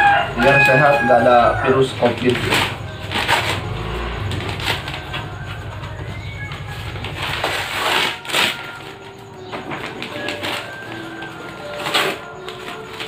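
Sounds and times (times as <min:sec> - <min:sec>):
wrapping paper rustling: 0:07.0 - 0:13.0.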